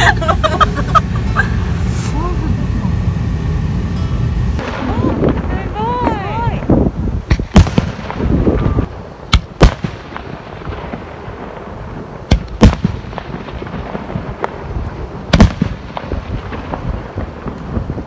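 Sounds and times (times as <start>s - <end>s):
faint crackling and rumble: 0.0s - 18.0s
firework bangs: 4.6s - 18.0s.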